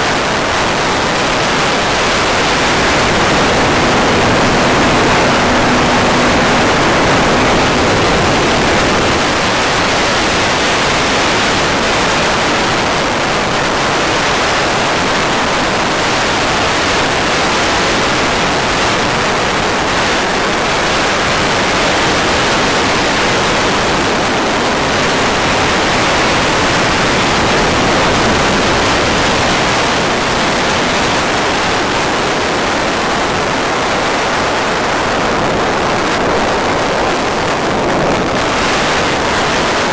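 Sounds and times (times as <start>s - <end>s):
faint electric motor hum: 1.4s - 12.6s.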